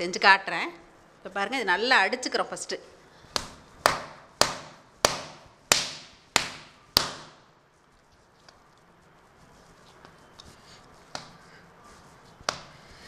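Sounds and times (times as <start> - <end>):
dough slapping on countertop: 3.3 - 7.5, 11.0 - 11.4, 12.3 - 12.8.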